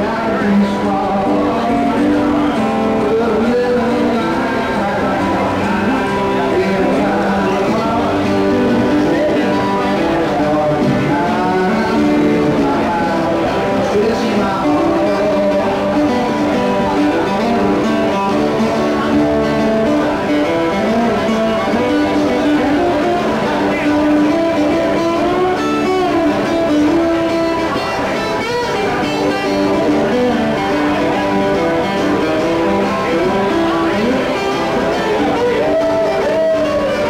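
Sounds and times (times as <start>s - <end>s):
acoustic guitar playing: 0.0s - 37.0s.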